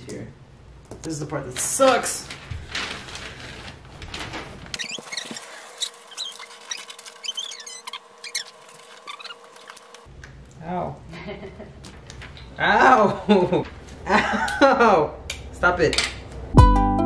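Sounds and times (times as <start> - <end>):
wrapping paper rustling and crinkling: 1.6 - 10.1
small high squeaks: 4.8 - 10.1.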